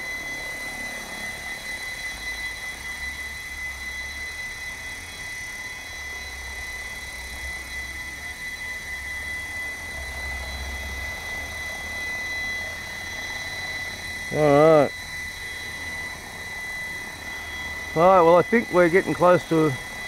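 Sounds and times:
rc helicopter motor whine: 0.0s - 20.0s
rotor drone: 0.0s - 20.0s.

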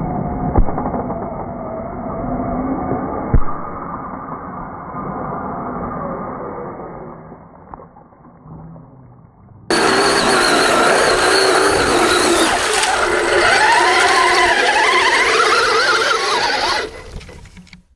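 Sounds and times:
driving through mud and water: 9.7s - 17.7s
electric motor whining: 9.7s - 17.8s.

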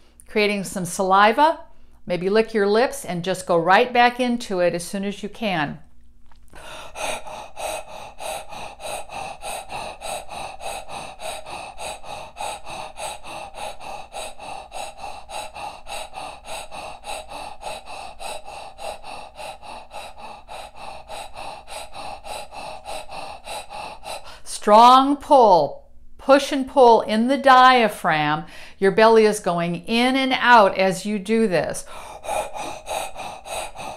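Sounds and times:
woman breathing quickly: 0.0s - 0.3s, 1.6s - 2.1s, 6.5s - 25.0s, 28.4s - 28.9s, 30.5s - 33.9s.

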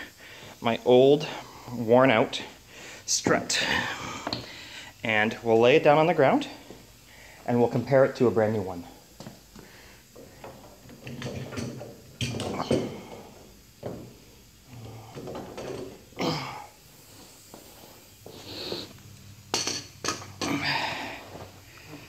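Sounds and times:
tools clattering on concrete floor: 10.2s - 13.0s, 15.1s - 16.0s, 19.5s - 20.7s.

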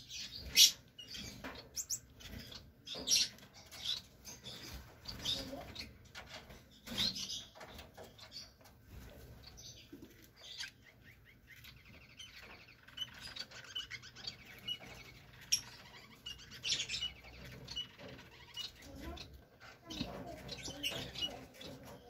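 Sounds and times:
lovebirds chirping: 0.0s - 22.0s
raspy bird chattering: 9.6s - 22.0s.

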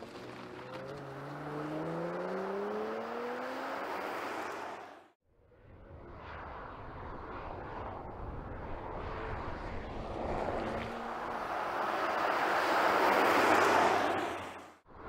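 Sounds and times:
tyre noise: 0.0s - 1.8s
car engine approaching: 0.0s - 5.2s, 7.2s - 14.8s.

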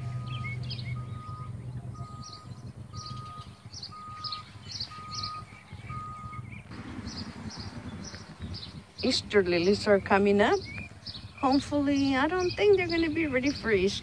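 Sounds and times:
electronic beeping: 0.0s - 6.7s
small birds chirping: 0.0s - 14.0s.

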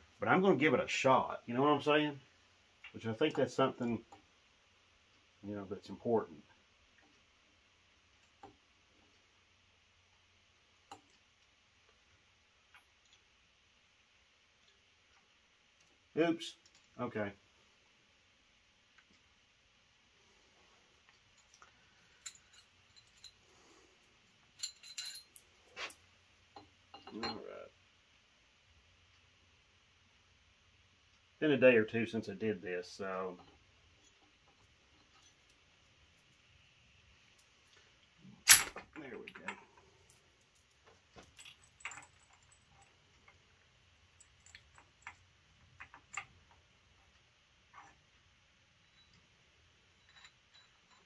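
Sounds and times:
metal tools clinking: 21.4s - 23.8s, 24.4s - 26.0s, 26.6s - 27.6s, 38.5s - 43.4s, 44.2s - 46.3s, 49.9s - 51.0s.

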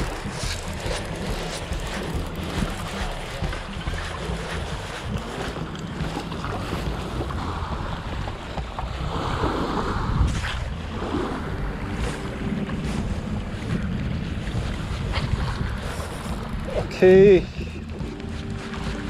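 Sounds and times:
small waves washing: 0.0s - 19.0s
wind buffeting microphone: 0.0s - 19.0s.

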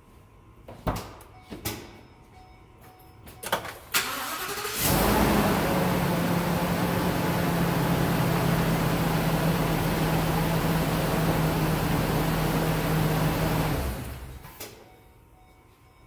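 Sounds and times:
ignition clicks: 3.4s - 4.9s
engine idling: 4.1s - 14.5s.

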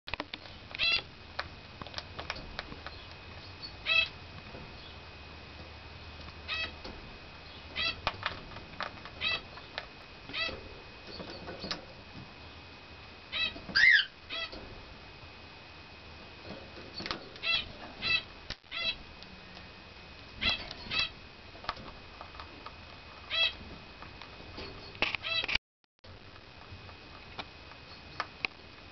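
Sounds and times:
high squeaky animal calls: 13.3s - 14.6s, 17.4s - 19.0s, 23.3s - 23.6s, 25.2s - 25.6s.

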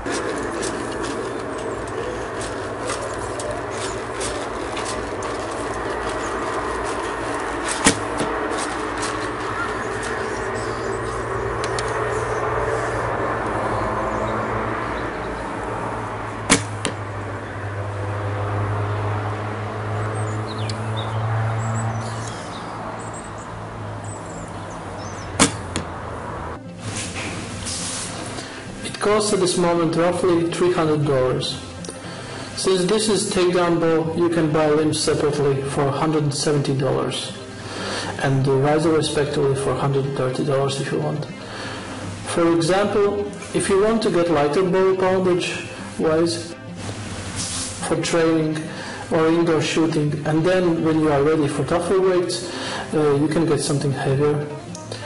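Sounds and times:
low hum: 0.0s - 28.9s
arrow striking target: 7.6s - 8.3s, 16.5s - 17.0s, 25.4s - 25.9s.

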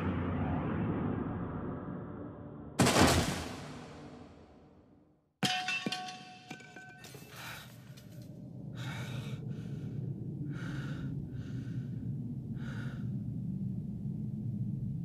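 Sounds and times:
sudden crash with ringing tones: 2.8s - 4.5s
pulsing breathing or gasps: 8.7s - 13.3s.

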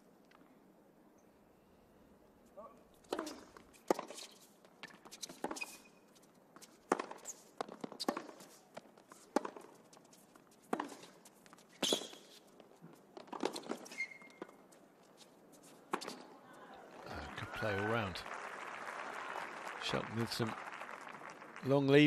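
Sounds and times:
shoe squeaks: 3.1s - 16.3s
racquets striking tennis ball: 6.7s - 9.8s, 10.6s - 11.2s.

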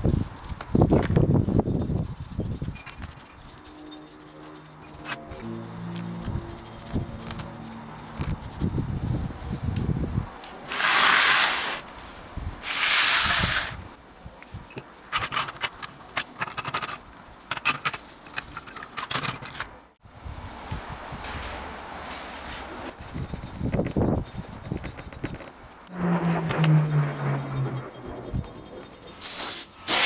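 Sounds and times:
hissing bursts: 12.6s - 13.8s, 29.2s - 30.0s
metal parts clinking in a plastic tray: 15.1s - 19.7s.

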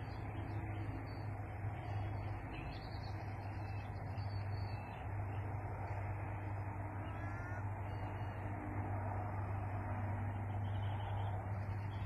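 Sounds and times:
low hum and hiss: 0.0s - 12.0s
faint bird calls: 0.8s - 8.6s.

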